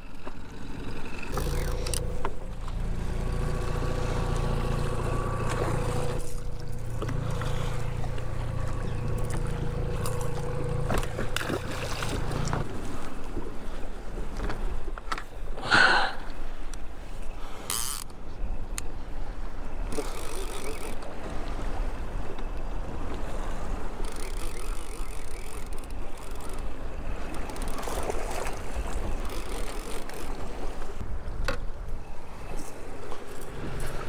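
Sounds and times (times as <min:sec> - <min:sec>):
boat motor humming: 0:00.0 - 0:34.0
clicks and knocks of fishing tackle: 0:01.3 - 0:02.8, 0:06.2 - 0:12.7, 0:17.7 - 0:18.9, 0:19.9 - 0:21.1, 0:24.0 - 0:30.4.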